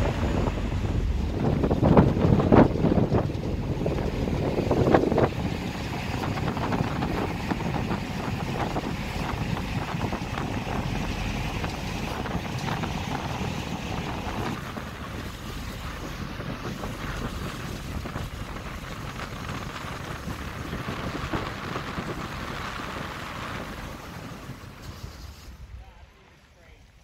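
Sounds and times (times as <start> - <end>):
wind gusting on microphone: 0.0 - 26.5
ferry engine and water rush: 0.0 - 27.0.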